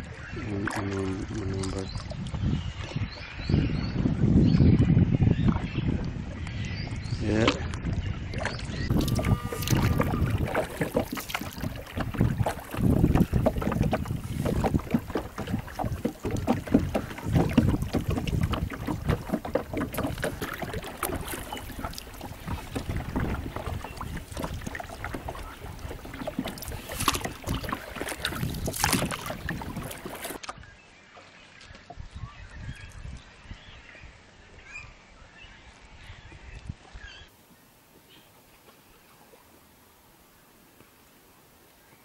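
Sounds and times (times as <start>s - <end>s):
water splashing around boat: 0.0s - 4.0s, 5.3s - 33.2s
wind buffeting microphone: 0.0s - 30.4s, 32.0s - 35.0s.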